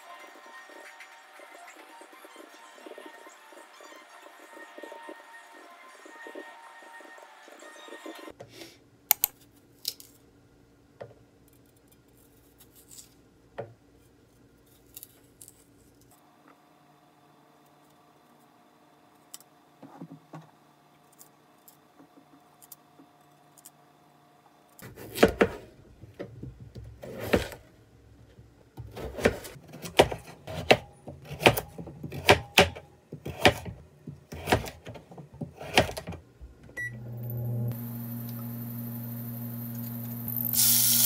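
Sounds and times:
knife chopping vegetables on board: 0:24.8 - 0:25.6, 0:28.8 - 0:36.1.

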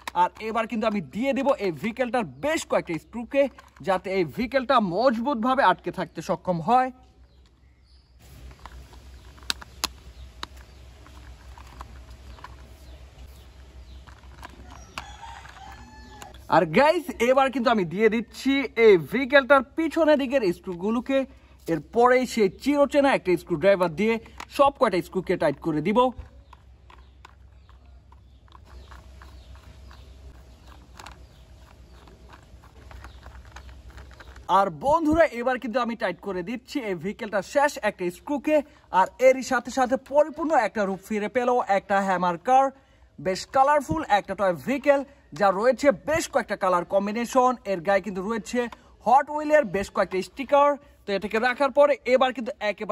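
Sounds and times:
plastic toy parts clicking: 0:00.0 - 0:01.6.

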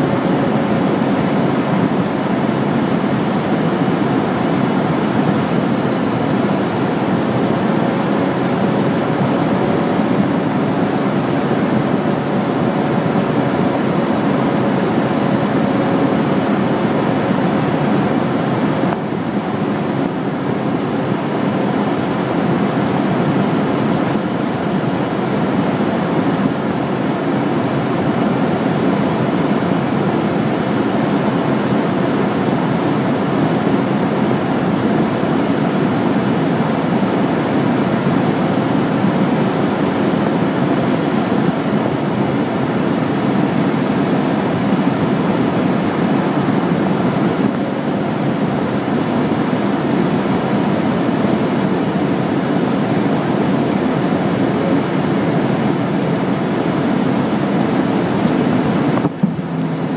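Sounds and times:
aircraft engine and airflow noise: 0:00.0 - 0:59.9
faint steady hum: 0:00.0 - 0:59.9.

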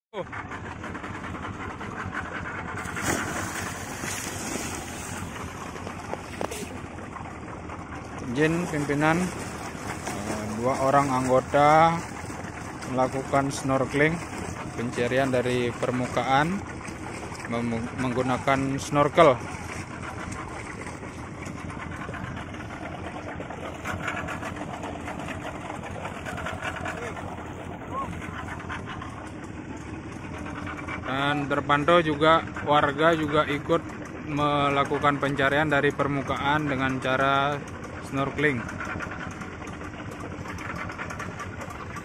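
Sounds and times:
small boat engine idling: 0:00.1 - 0:42.0
water splashing: 0:00.6 - 0:42.0
wind and water rushing: 0:01.6 - 0:29.7
person splashing into water: 0:02.8 - 0:06.8.

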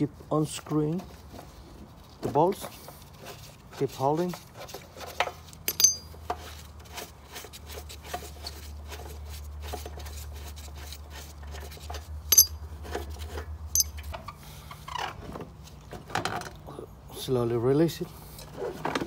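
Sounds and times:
metal clinks and scraping: 0:05.0 - 0:06.6, 0:11.4 - 0:14.3
sharp ringing clinks: 0:05.7 - 0:06.1, 0:12.3 - 0:12.6, 0:13.7 - 0:14.0.

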